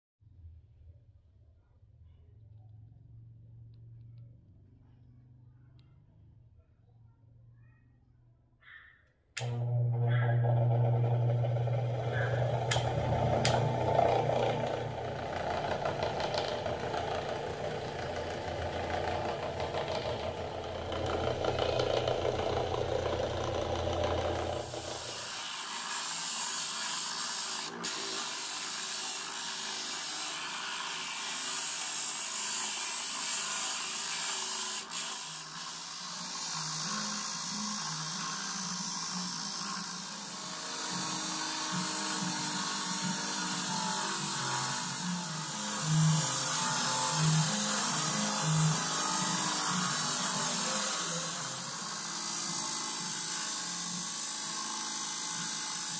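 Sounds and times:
disc sander rasping wood: 9.4 - 55.9
electric motor humming: 9.4 - 55.9.

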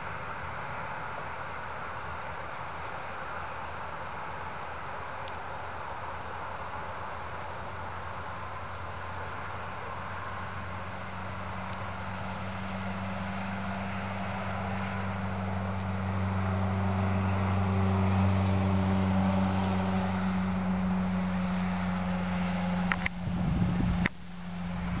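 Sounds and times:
engine hum: 0.0 - 25.0.

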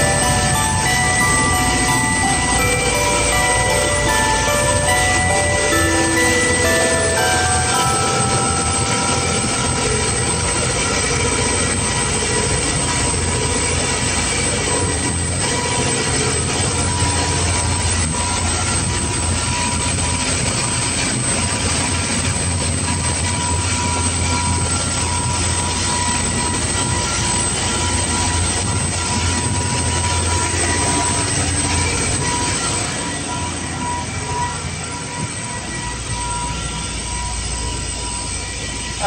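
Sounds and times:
boat engine drone: 0.0 - 20.4.

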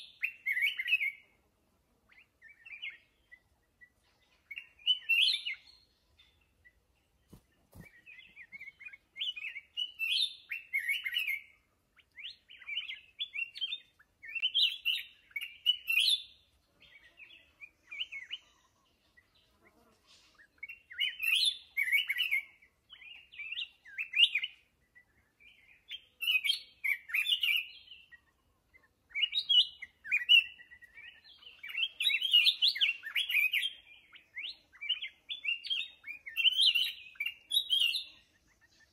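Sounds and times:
bird warbling song: 0.0 - 1.4, 2.0 - 38.9.

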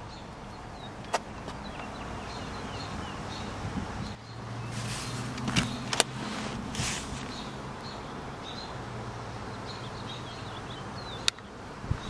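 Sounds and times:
seatback swishing forward: 4.6 - 7.6
sharp clicks: 5.3 - 6.2.

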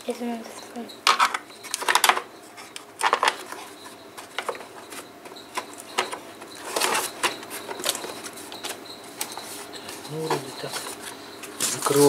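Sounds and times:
plastic parts clicking and knocking: 1.0 - 9.4.

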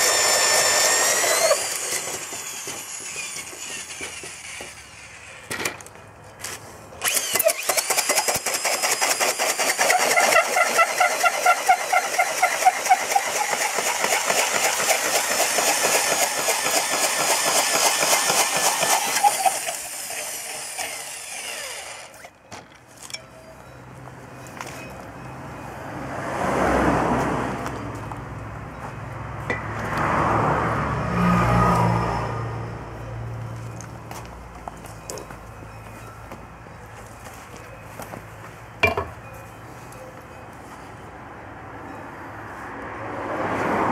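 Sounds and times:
drill rattling chatter: 0.0 - 5.4, 7.0 - 22.3.

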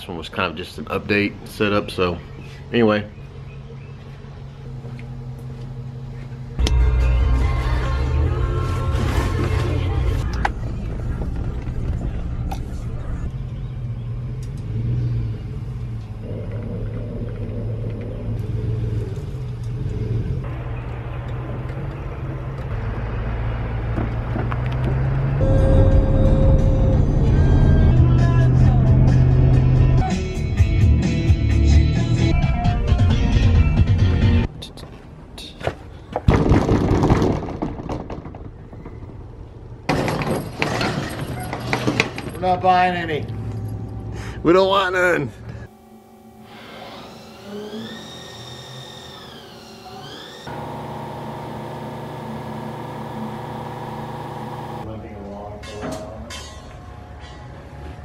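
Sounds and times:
car engine humming: 1.8 - 30.0, 48.6 - 54.9.

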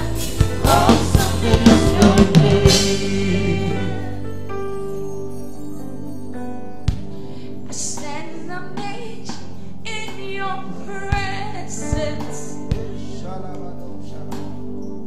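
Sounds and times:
woman singing gospel song: 0.0 - 4.2, 7.7 - 12.8
live band backing chords: 0.0 - 5.4, 8.8 - 13.7.

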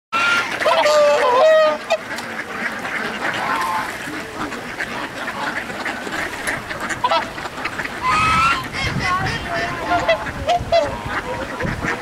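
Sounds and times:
ducks quacking: 0.2 - 12.0.

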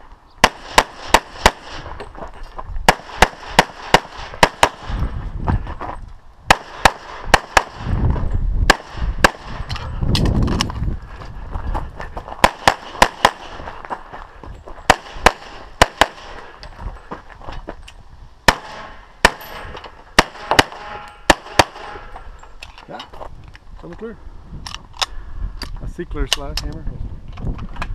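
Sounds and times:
pistol shots: 0.4 - 1.9, 2.9 - 5.0, 6.5 - 7.9, 8.7 - 9.6, 12.4 - 13.6, 14.9 - 16.5, 18.5 - 22.1.

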